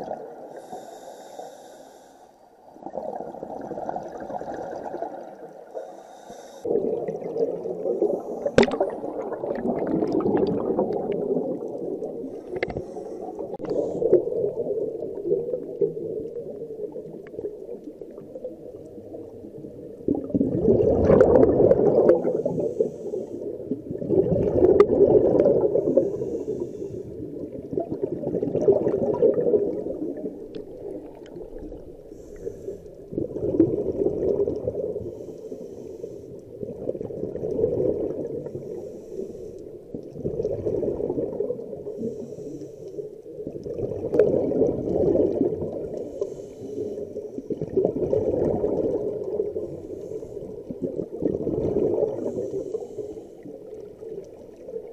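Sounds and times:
diver exhaling bubbles underwater: 2.8 - 5.9, 6.6 - 32.5, 33.1 - 35.2, 36.5 - 38.8, 39.9 - 42.2, 43.4 - 46.2, 47.5 - 49.9, 50.6 - 53.0.

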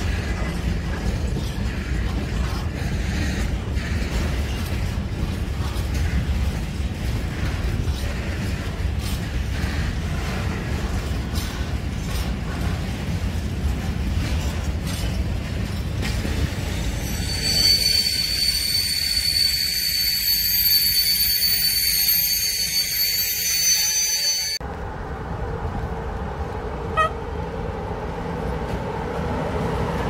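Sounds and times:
train wagons rumbling on rails: 0.0 - 30.0
wheels squealing: 14.2 - 24.6.

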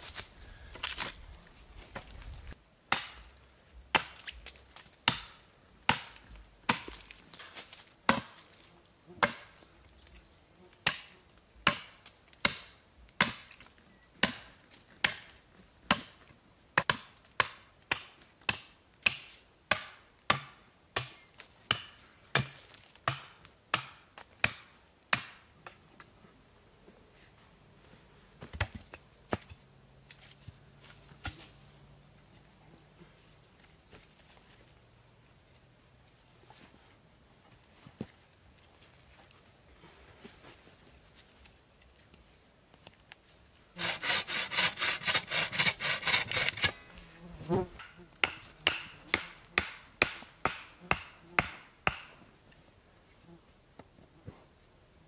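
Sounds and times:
axe chopping wood: 2.9 - 8.5, 9.2 - 9.5, 10.8 - 13.6, 14.2 - 16.2, 16.8 - 25.5, 47.8 - 52.2.

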